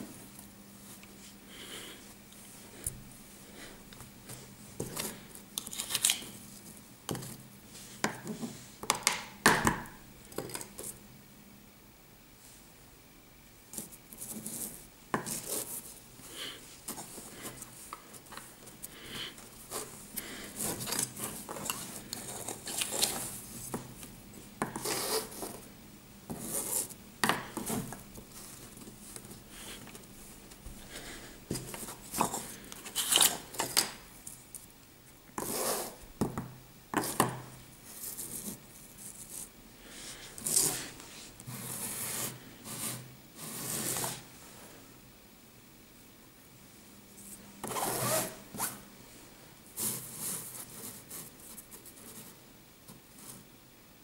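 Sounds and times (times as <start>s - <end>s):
hand rubbing kinetic sand: 24.7s - 25.7s, 26.3s - 29.9s, 40.1s - 44.3s, 49.8s - 52.4s.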